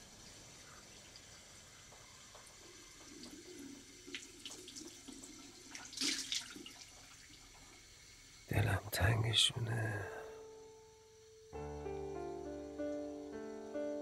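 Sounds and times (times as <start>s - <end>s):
tap water running into hands: 0.0s - 8.1s
water splashing on face: 3.0s - 7.1s.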